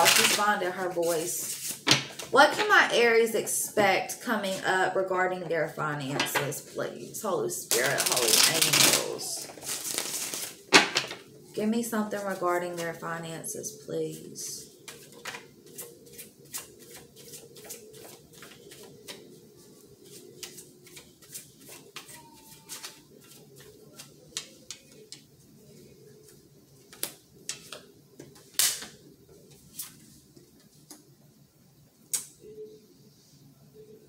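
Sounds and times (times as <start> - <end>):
cards shuffling: 0.0 - 2.3, 7.7 - 11.1.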